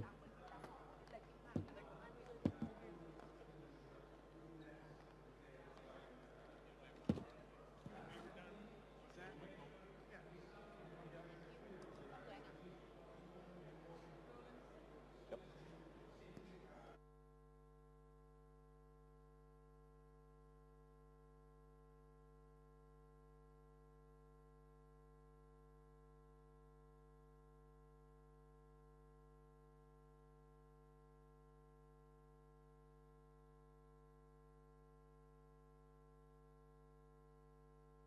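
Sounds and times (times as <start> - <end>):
faint electronic hum: 15.8 - 38.0.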